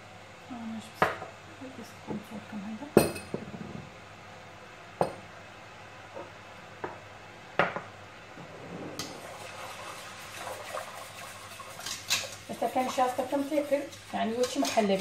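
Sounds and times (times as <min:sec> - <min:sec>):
dishes knocking on countertop: 0:03.0 - 0:03.9, 0:06.8 - 0:07.0, 0:07.6 - 0:07.9.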